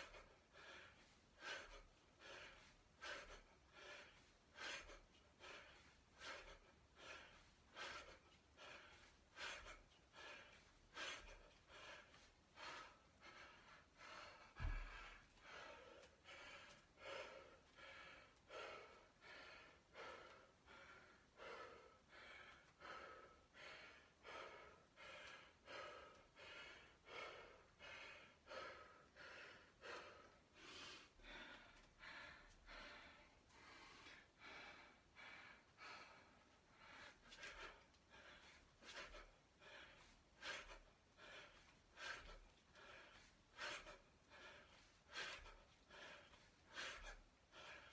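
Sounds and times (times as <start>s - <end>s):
man panting hard: 0.0s - 47.9s.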